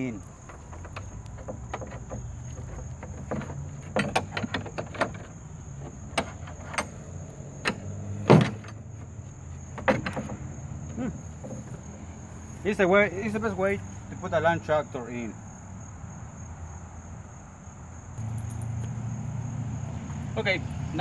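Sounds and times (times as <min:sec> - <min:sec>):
wooden boards shifting: 0:00.3 - 0:07.0, 0:07.6 - 0:11.9
metal clinks and knocks: 0:00.3 - 0:10.6, 0:11.2 - 0:11.9, 0:18.2 - 0:19.1.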